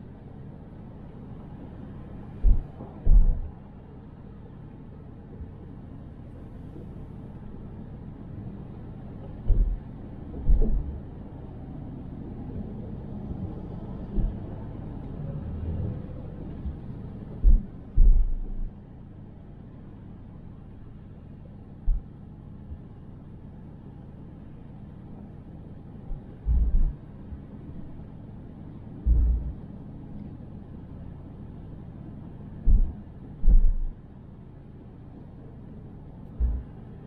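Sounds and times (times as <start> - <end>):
car road and engine rumble: 0.0 - 37.0
heavy low thumps: 2.4 - 3.6, 9.4 - 11.1, 14.1 - 14.4, 17.4 - 18.7, 21.9 - 22.1, 26.1 - 27.0, 29.0 - 29.6, 32.6 - 34.0, 36.4 - 36.7.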